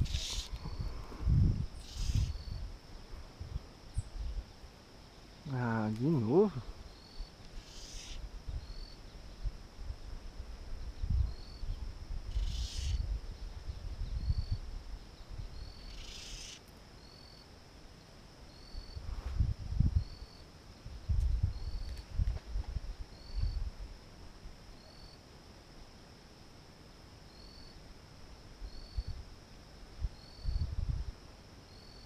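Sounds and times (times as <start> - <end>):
low rumbling on microphone: 0.0 - 4.4
insects buzzing: 0.0 - 32.0.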